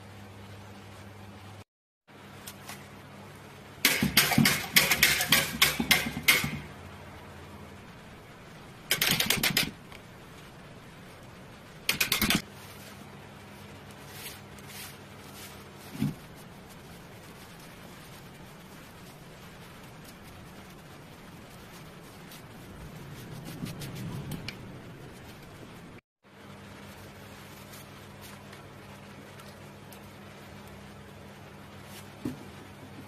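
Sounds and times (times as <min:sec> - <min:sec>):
whisk clattering against steel bowl: 0:03.9 - 0:06.7.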